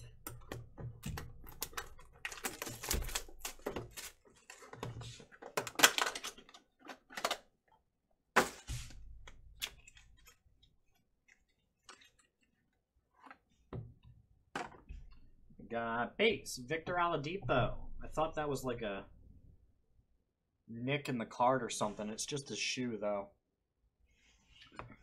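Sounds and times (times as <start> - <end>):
wrapper rustling and crinkling: 1.4 - 7.4.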